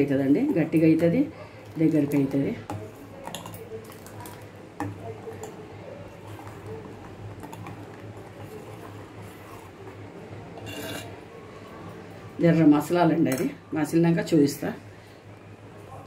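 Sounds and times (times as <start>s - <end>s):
ladle scraping and sloshing in pot: 2.8s - 11.2s.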